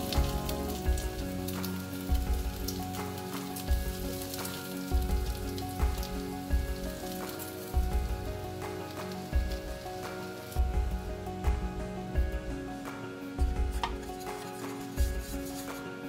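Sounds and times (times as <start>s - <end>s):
background music with steady beat: 0.0s - 16.0s
bacon sizzling in frying pan: 0.0s - 16.0s.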